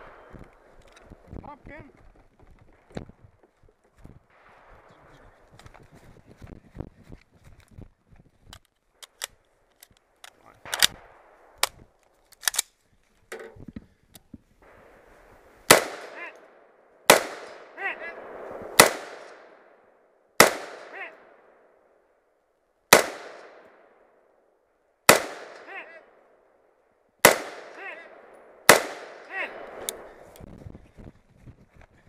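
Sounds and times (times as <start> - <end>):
rifle handling clicks: 8.5 - 10.9, 11.6 - 12.8
rifle shots echoing: 15.7 - 21.8, 22.9 - 24.1, 25.1 - 26.4, 27.2 - 30.3.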